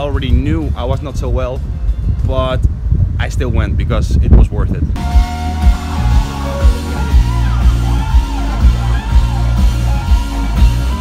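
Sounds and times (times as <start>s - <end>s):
drum and bass beat: 5.0s - 11.0s
person singing: 5.0s - 11.0s.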